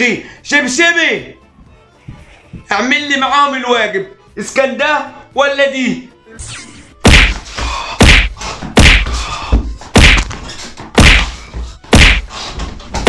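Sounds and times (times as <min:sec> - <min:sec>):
slipper smacking: 0:07.1 - 0:13.0.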